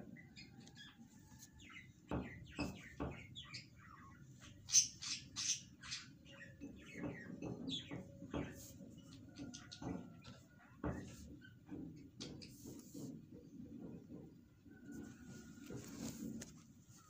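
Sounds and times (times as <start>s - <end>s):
birds chirping: 0.0s - 14.3s
dull knocks: 2.1s - 3.6s.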